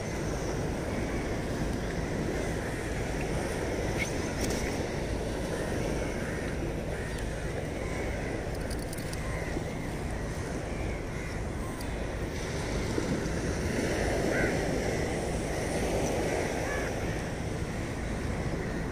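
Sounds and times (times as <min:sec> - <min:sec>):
sea surf: 0:00.0 - 0:18.9
faint bird calls: 0:00.8 - 0:12.2, 0:13.9 - 0:18.9
wind on microphone: 0:07.6 - 0:18.9.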